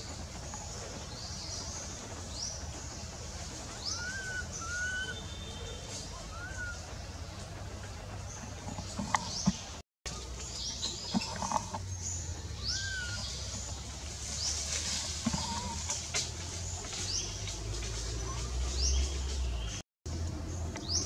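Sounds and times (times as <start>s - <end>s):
birds chirping: 0.0s - 21.0s
steady low rumble: 0.0s - 21.0s
whistled bird glides: 3.8s - 6.9s.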